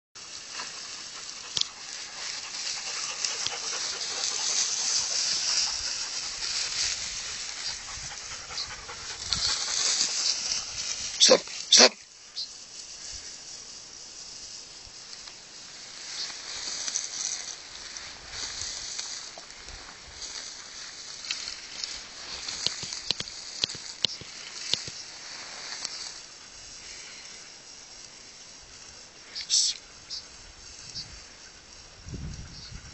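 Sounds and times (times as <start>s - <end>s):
rustling dry grass: 0.2s - 32.9s
steady high hiss: 0.2s - 32.9s
dogs panting: 0.4s - 11.0s.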